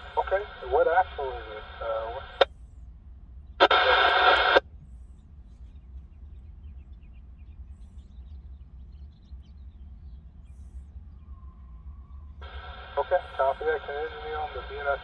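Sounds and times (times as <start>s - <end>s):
low steady rumble: 0.0s - 15.0s
faint bird chirps: 4.7s - 15.0s.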